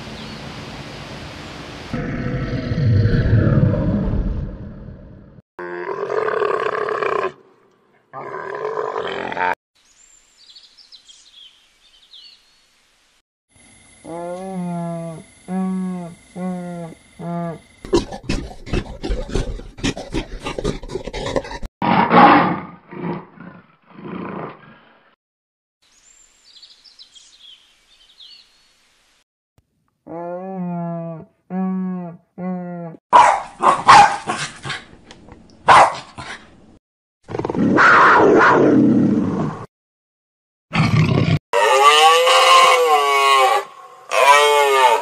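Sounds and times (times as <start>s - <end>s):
big cat roar: 2.0s - 7.4s, 15.7s - 24.6s
rough grunting pulses: 17.5s - 21.7s
leopard rasping roar: 17.9s - 24.4s
dog barking: 33.1s - 34.8s, 35.6s - 36.3s, 37.8s - 38.6s.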